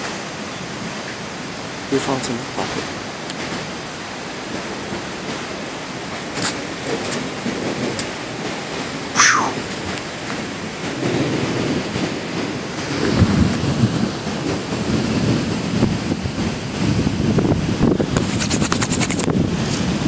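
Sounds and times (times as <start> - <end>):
rain: 0.0 - 20.0
wind: 0.0 - 20.0
thunder rumbling: 4.5 - 18.2
short falling whistle: 9.2 - 9.6.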